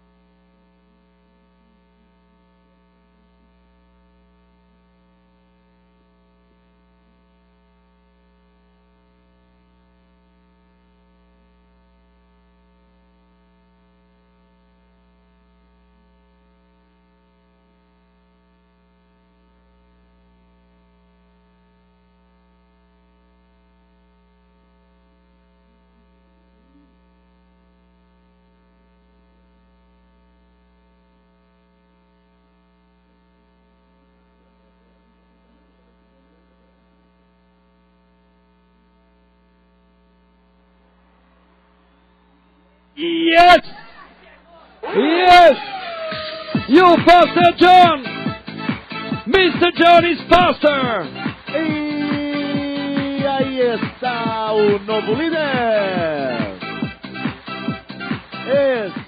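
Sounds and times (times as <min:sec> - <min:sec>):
faint mains hum: 0:00.0 - 0:46.1.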